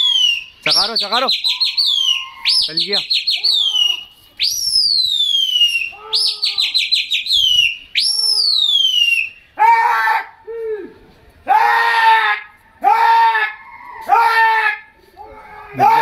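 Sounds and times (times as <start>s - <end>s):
person whistling loud calls: 0.0s - 9.5s
person shouting: 14.2s - 16.0s.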